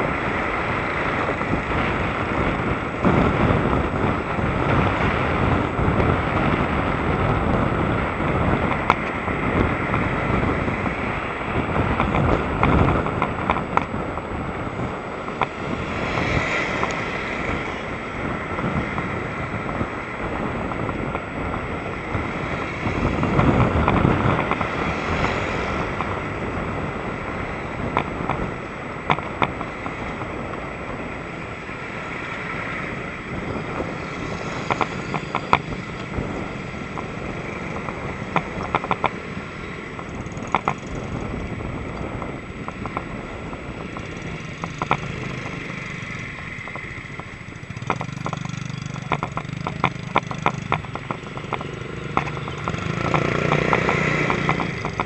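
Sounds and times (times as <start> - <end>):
bike rattling over bumps: 0.0 - 55.0
engines idling: 0.0 - 55.0
wind and tyre noise: 0.0 - 55.0.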